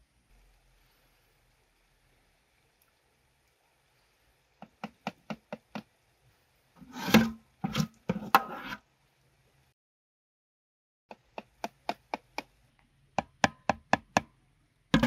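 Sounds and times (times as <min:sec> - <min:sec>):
ladle scraping jar and metal pot: 0:06.8 - 0:08.8.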